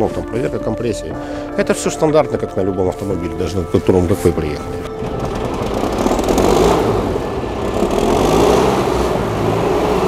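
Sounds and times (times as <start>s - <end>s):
vehicle engine running: 3.3s - 10.0s.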